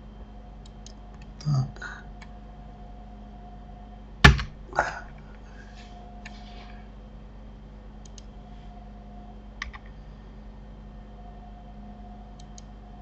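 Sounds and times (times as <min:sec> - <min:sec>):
faint electrical hum: 0:00.0 - 0:13.0
computer key and mouse clicks: 0:08.0 - 0:08.3, 0:09.6 - 0:09.9, 0:12.4 - 0:12.7.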